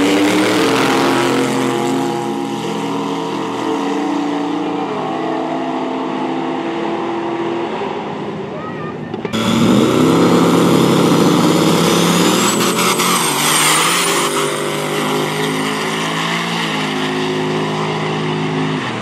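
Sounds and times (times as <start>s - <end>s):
race car engine at full throttle: 0.0s - 19.0s
high whine rising in pitch: 9.4s - 18.4s.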